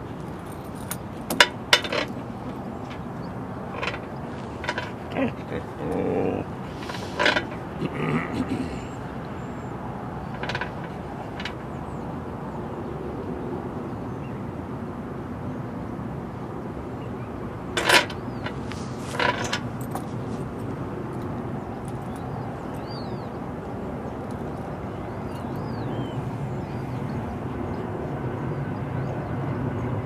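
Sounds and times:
low outdoor rumble: 0.0 - 12.8
short clinks: 0.2 - 3.1, 3.7 - 5.5, 6.8 - 7.7, 10.2 - 11.7, 17.8 - 20.1.

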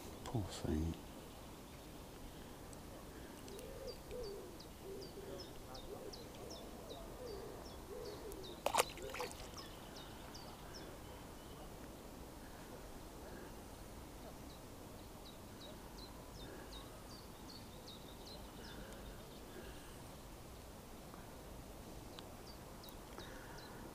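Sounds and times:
small bird calling: 3.2 - 11.7.

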